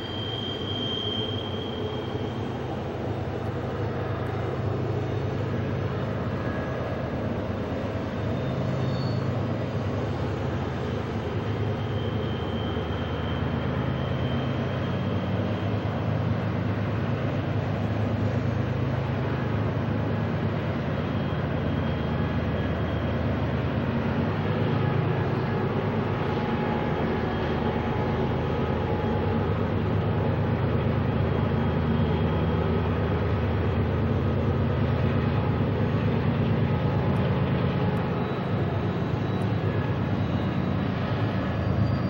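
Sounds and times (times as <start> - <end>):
faint wheel squeals: 0.0 - 3.2, 7.8 - 16.4, 36.0 - 42.0
locomotive engine drone: 0.0 - 42.0
rumble of rolling train cars: 0.0 - 42.0.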